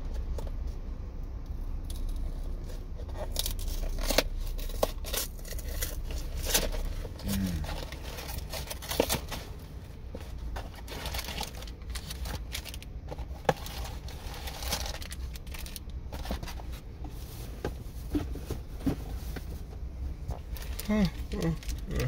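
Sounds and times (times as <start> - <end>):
steady low hum: 0.0 - 22.0
plastic wrapper crinkling: 10.3 - 16.6, 20.4 - 22.0.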